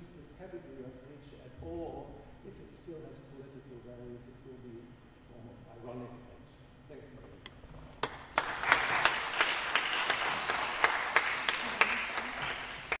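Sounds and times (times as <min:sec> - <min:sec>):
audience applauding: 0:08.0 - 0:13.0.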